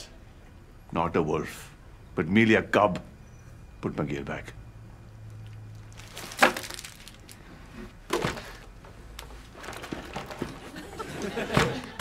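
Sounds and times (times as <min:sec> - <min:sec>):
small goods knocking and clattering: 0:05.9 - 0:07.4, 0:08.1 - 0:10.8.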